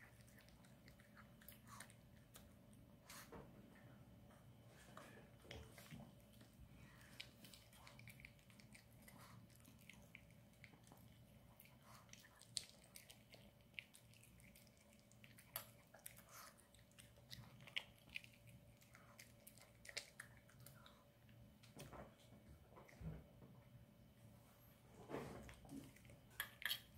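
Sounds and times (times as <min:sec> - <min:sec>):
dog chewing wetly: 0:00.0 - 0:03.2, 0:05.4 - 0:21.0.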